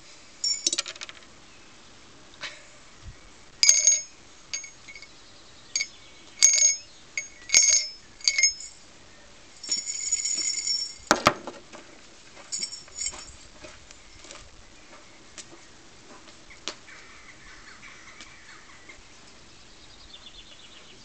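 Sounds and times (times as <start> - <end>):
small metal bell ringing: 0.4 - 0.9, 3.6 - 5.1, 5.8 - 8.8, 9.6 - 11.2, 12.5 - 13.4.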